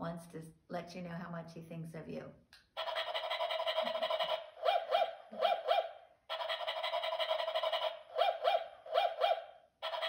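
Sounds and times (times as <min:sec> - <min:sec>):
toy dog yipping: 0:02.8 - 0:10.0.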